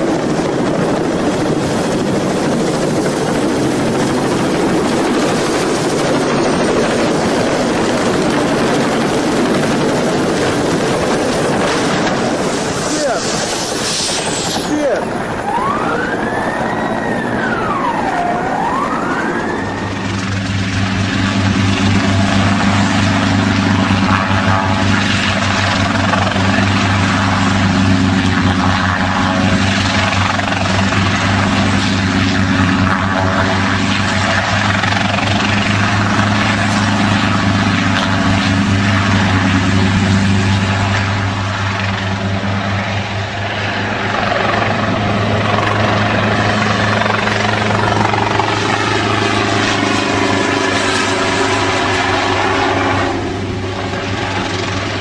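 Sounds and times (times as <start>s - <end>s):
helicopter engine and rotor: 0.0s - 55.0s
siren wailing: 14.6s - 24.9s, 43.8s - 54.9s.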